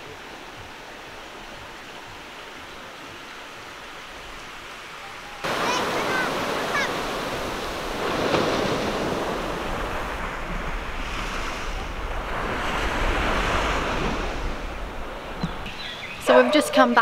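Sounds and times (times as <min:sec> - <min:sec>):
surf washing up beach: 0:00.0 - 0:17.0
wind on microphone: 0:05.4 - 0:16.7.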